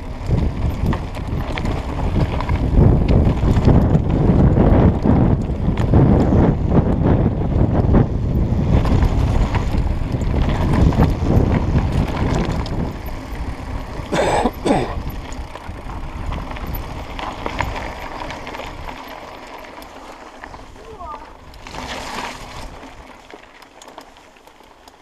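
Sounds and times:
wind buffeting microphone: 0.0s - 19.1s
bike tyre rumble and rattles: 0.0s - 25.0s.

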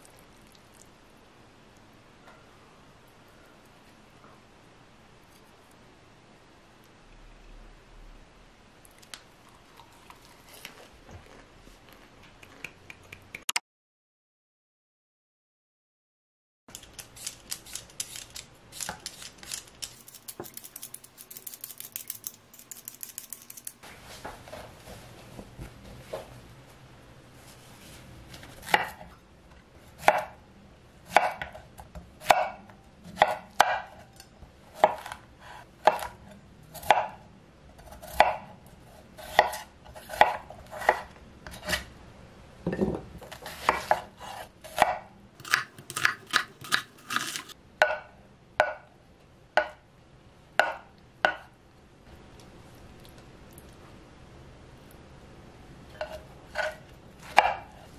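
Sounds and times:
peeler scraping potato skin: 16.7s - 23.8s, 43.3s - 47.6s
knife chopping on wooden board: 39.3s - 41.0s, 56.0s - 57.7s.

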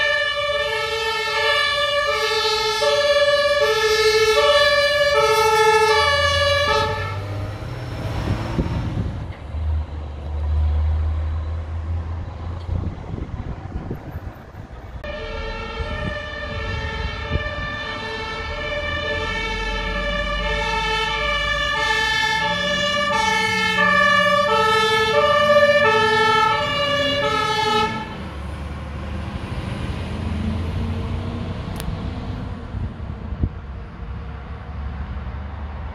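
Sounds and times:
fire engine two-tone siren: 0.0s - 9.0s, 15.0s - 28.7s
road noise: 0.0s - 35.9s
truck engine rumbling: 0.0s - 35.9s.

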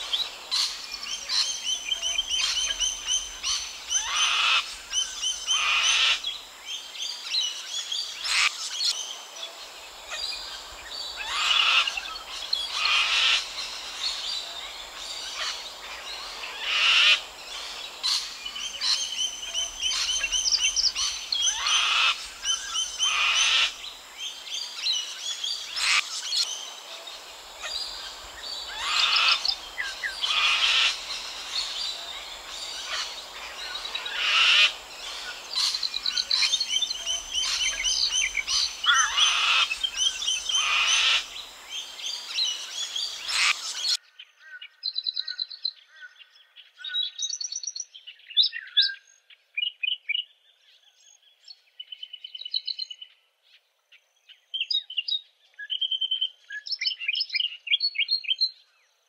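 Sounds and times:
small birds chirping trills: 0.0s - 44.0s
cockatoos screeching: 10.1s - 23.8s, 27.5s - 41.5s.

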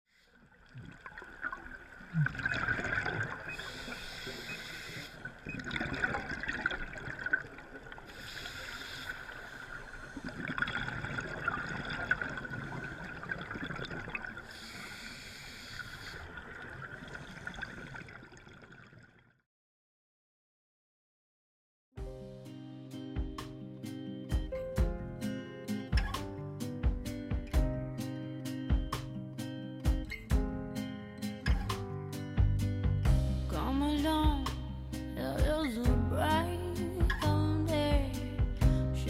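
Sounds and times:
exhaled bubbles gurgling: 0.5s - 15.0s, 15.8s - 19.3s
regulator hiss on inhalation: 3.6s - 5.3s, 8.1s - 10.3s, 14.4s - 16.3s.

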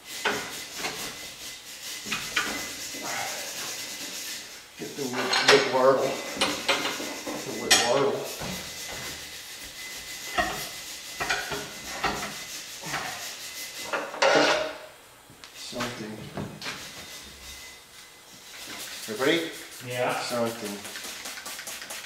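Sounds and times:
steel tools clanking: 5.0s - 8.4s, 10.2s - 13.1s.

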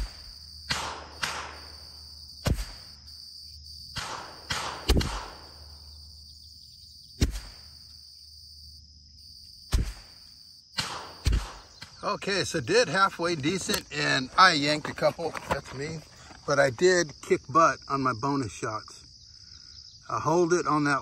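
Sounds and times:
rifle shots: 0.0s - 2.9s, 3.9s - 5.6s, 10.8s - 11.9s.

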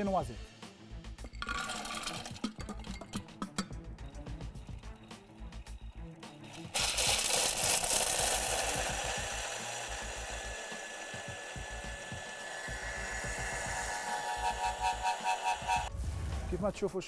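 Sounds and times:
food processor grinding nuts: 1.4s - 2.4s, 6.4s - 15.9s.

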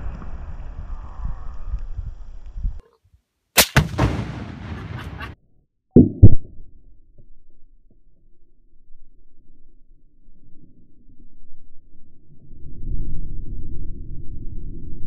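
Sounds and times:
sharp blast echoing: 3.6s - 5.4s
very loud close blast: 3.6s - 5.4s
explosion rumble: 3.8s - 5.4s.

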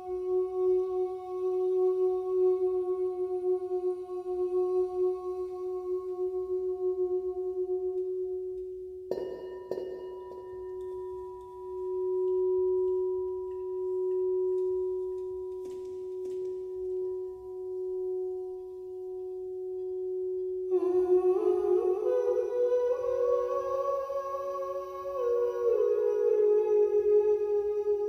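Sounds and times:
singing bowl ringing tone: 0.0s - 28.0s
singing bowl struck with mallet: 8.0s - 20.8s.

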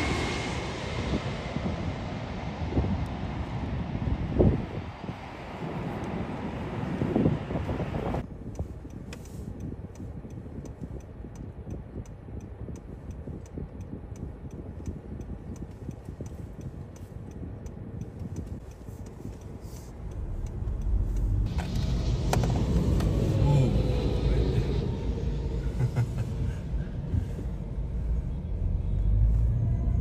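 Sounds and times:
rush of noise: 0.0s - 8.2s, 20.2s - 30.0s
low rumble inside car: 5.8s - 30.0s
steady light ticking: 8.5s - 21.4s.

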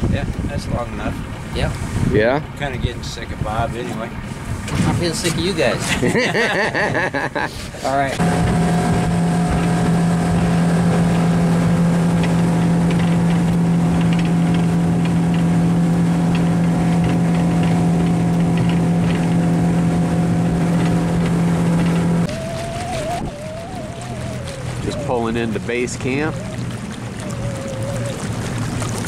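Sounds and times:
outboard motor running: 0.0s - 29.0s.

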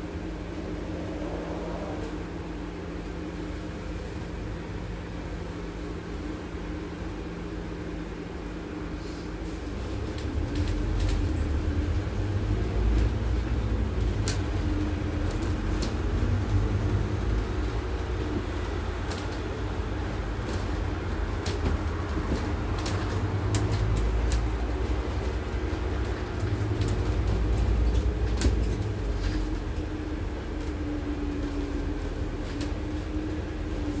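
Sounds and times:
bus engine rumble: 0.0s - 34.0s.

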